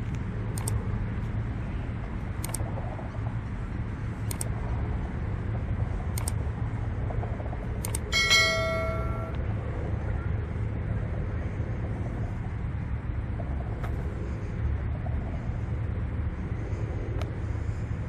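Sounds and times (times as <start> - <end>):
distant city traffic rumble: 0.0 - 18.0
bell ding: 8.1 - 9.4.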